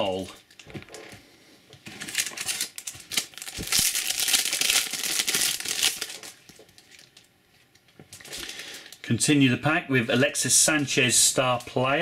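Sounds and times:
foil pack tearing and crinkling: 1.9 - 7.2.

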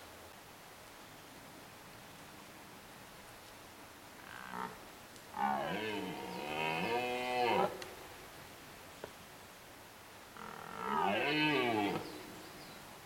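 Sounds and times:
deer stag roaring: 10.4 - 12.0.

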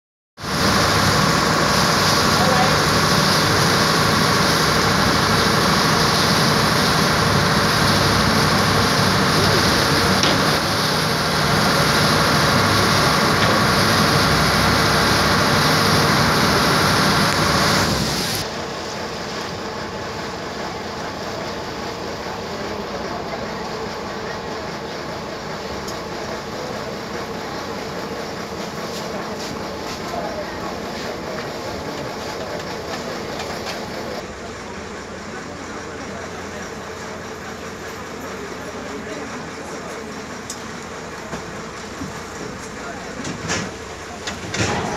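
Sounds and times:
wind and water rushing: 0.4 - 19.1
boat engine running: 0.4 - 44.9.

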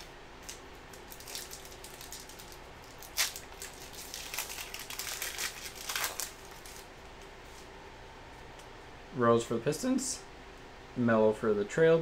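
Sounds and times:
foil wrapper crinkling torn open: 0.4 - 6.9.

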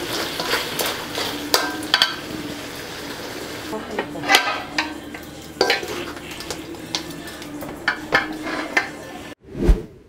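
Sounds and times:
metal spoon scraping a pot: 0.0 - 2.3, 4.2 - 9.2.

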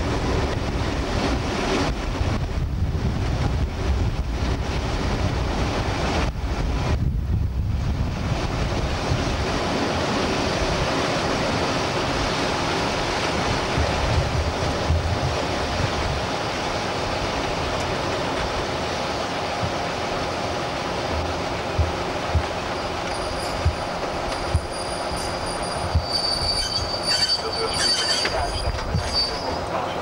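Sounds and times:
train engine and wheels rumbling: 0.0 - 30.0
wind buffeting microphone: 0.0 - 30.0
low thumps: 21.1 - 26.9.

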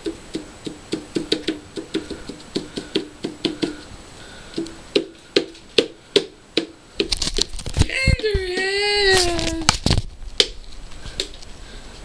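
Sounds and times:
toy bat hollow knocks: 0.0 - 3.8.

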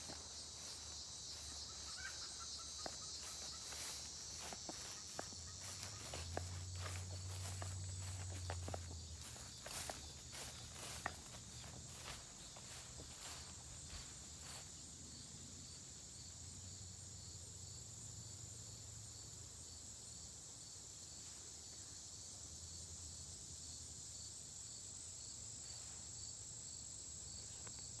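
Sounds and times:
rustling steps through plants: 0.0 - 14.6
high-pitched insect chorus: 0.0 - 28.0.

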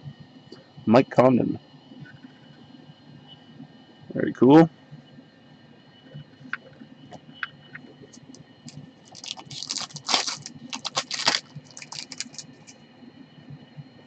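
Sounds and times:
trading cards and foil pack crackling: 8.2 - 12.7.

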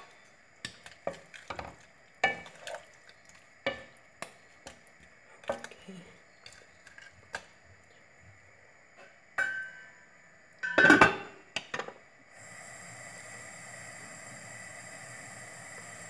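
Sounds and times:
gas burner hiss: 0.0 - 16.0
metal lid clattering on wok: 10.6 - 11.9.

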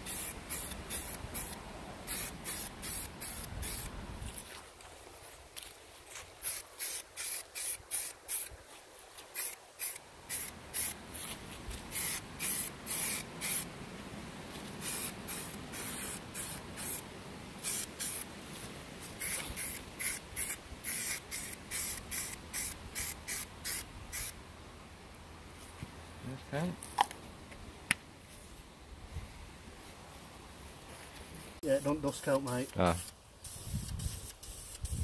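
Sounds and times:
spray paint can spraying: 0.0 - 3.9, 6.4 - 8.5, 9.4 - 11.0, 11.9 - 13.7, 14.8 - 17.0, 17.6 - 18.2, 19.1 - 24.3, 31.8 - 35.0.

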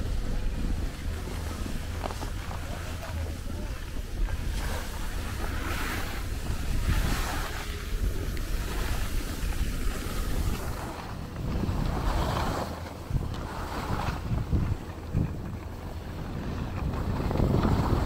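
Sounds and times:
skis sliding on packed snow: 0.0 - 18.0
wind buffeting microphone: 0.0 - 18.0.

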